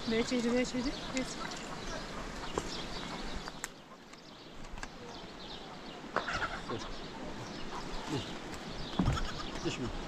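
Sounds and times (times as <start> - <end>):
chickens clucking: 6.0 - 10.0
short animal calls: 6.2 - 7.0, 9.0 - 9.8.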